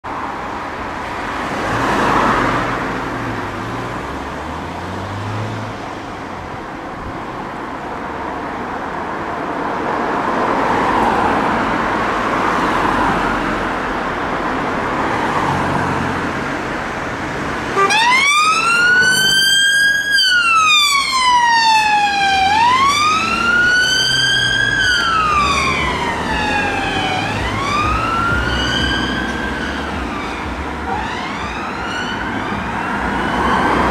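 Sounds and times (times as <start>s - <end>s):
road traffic noise: 0.0s - 33.9s
police siren wailing: 17.7s - 33.9s.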